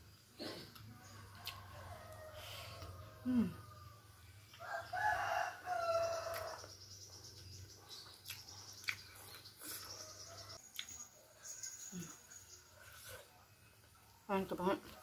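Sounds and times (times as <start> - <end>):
rooster crowing: 1.1 - 6.8.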